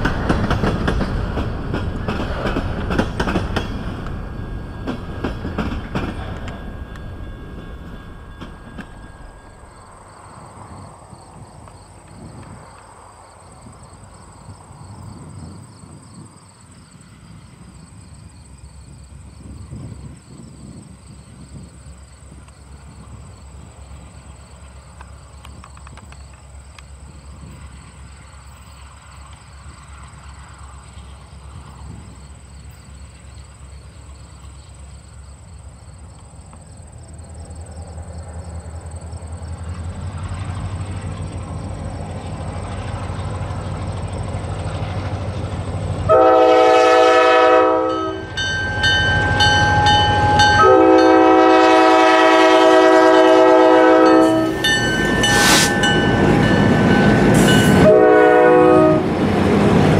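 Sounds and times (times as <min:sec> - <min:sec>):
diesel locomotive rumble: 0:00.0 - 0:59.9
train wheels on rails: 0:00.0 - 0:59.9
train air horn blasts: 0:46.1 - 0:59.2.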